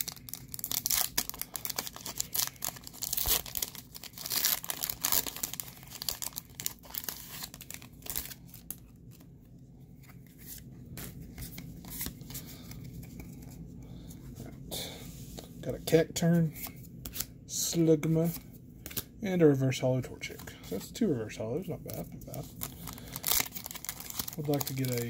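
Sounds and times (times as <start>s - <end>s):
foil wrapper tearing and crinkling: 0.0s - 8.8s, 22.5s - 25.0s
cards rustling and clicking: 21.8s - 25.0s.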